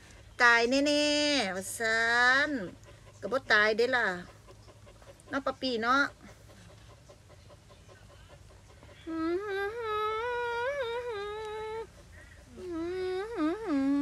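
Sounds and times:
woman humming: 9.0 - 14.0.

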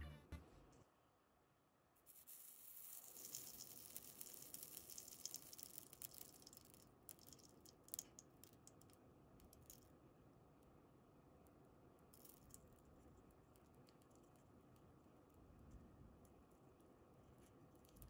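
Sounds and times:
solder sizzling and crackling: 2.0 - 8.8.

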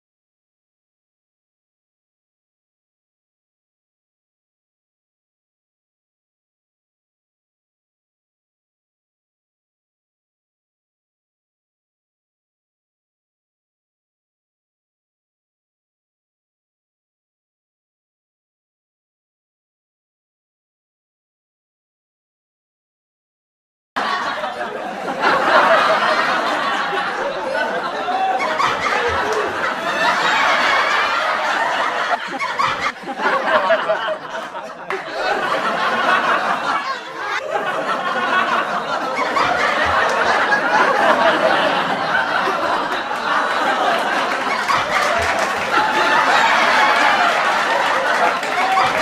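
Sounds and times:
crowd laughing and chattering: 24.0 - 49.0.

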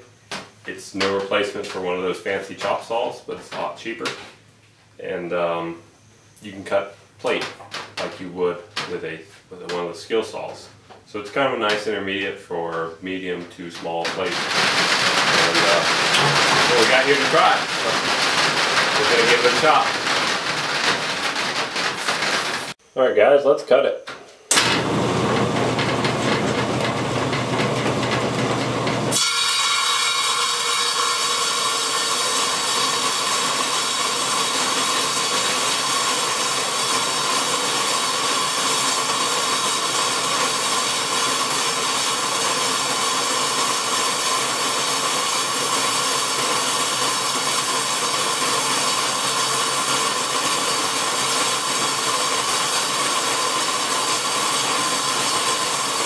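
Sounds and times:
saw cutting steel plate: 14.2 - 22.8, 24.5 - 56.0.

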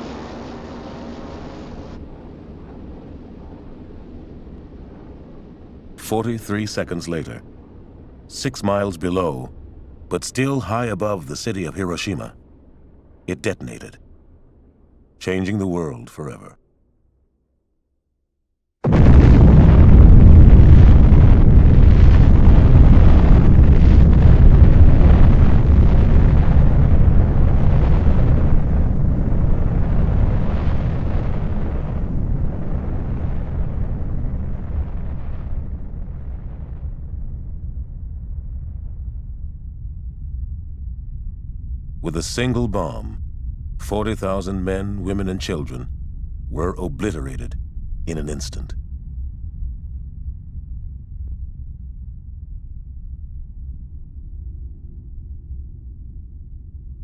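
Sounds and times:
wind-like hiss: 0.0 - 10.9
low rumble: 0.0 - 16.6, 18.8 - 57.0.

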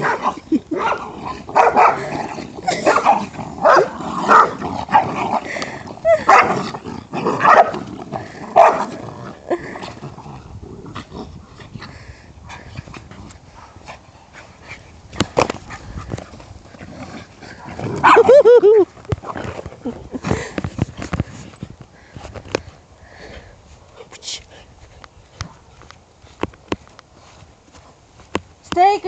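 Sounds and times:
small dogs barking: 0.0 - 5.1, 6.1 - 6.6, 7.4 - 7.8, 8.6 - 8.9, 18.0 - 18.5.

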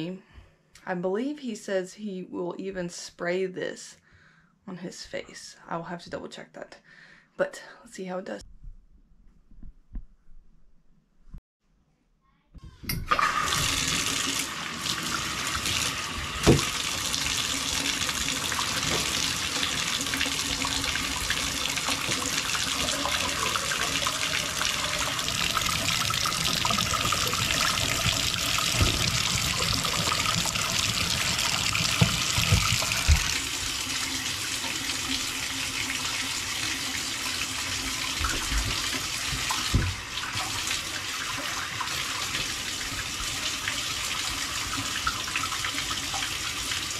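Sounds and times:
water pouring into bathtub: 13.1 - 46.9.

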